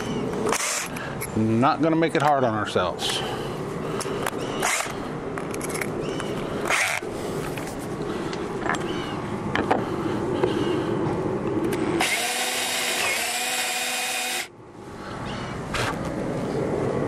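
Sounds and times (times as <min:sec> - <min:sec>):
cordless drill boring: 0:00.5 - 0:00.9, 0:06.7 - 0:07.0, 0:12.0 - 0:14.5.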